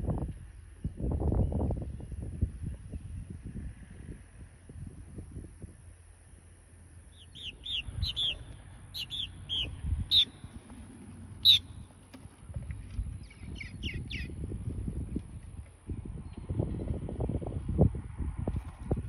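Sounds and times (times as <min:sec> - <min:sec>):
birds chirping: 0:06.9 - 0:16.5.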